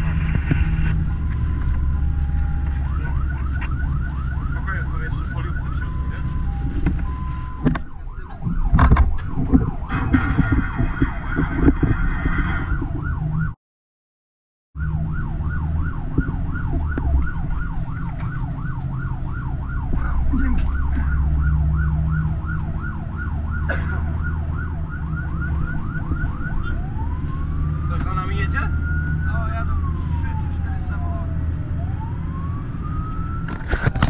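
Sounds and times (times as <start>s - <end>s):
diesel engine running: 0.0s - 7.6s
fire engine siren yelping: 0.0s - 13.6s, 14.8s - 34.0s.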